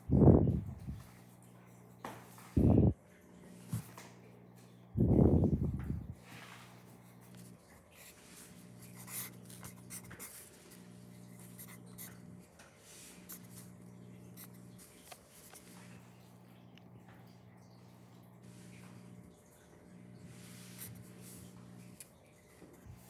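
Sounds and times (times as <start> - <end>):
faint low hum: 0.0 - 23.0
pencil scratching on paper: 6.8 - 12.2.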